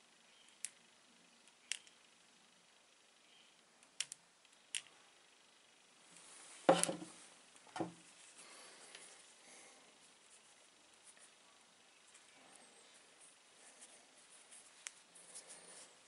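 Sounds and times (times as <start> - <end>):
magnet clicking against stone: 1.4 - 2.1, 3.8 - 4.9
handling knock and rustling: 6.6 - 8.1.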